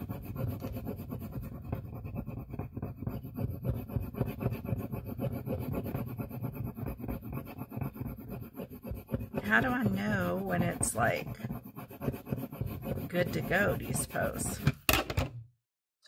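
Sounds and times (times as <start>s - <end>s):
rubbing strokes on paper: 0.0s - 14.6s.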